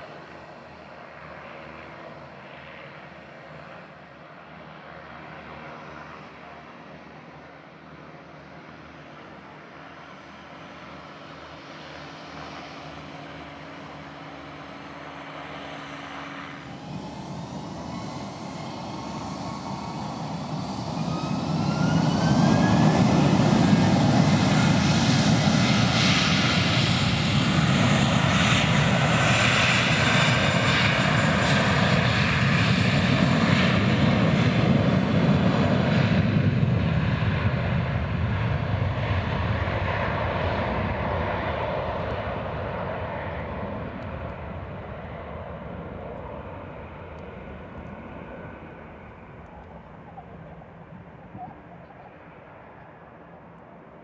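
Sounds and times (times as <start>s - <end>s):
airliner engines spooling up: 0.0s - 54.0s.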